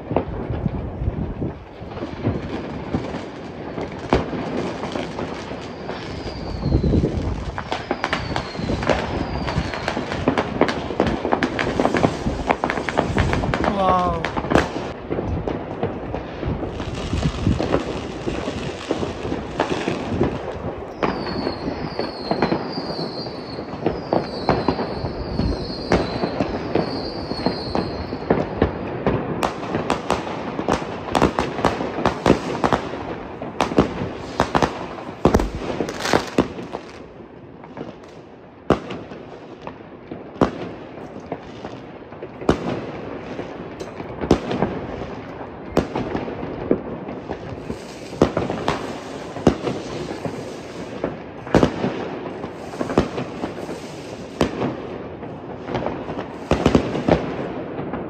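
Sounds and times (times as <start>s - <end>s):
fireworks crackling and banging: 0.0s - 58.0s.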